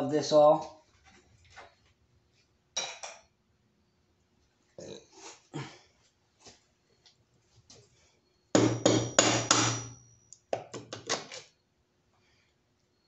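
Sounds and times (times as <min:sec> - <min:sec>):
hammer striking engine block: 0:08.6 - 0:10.0.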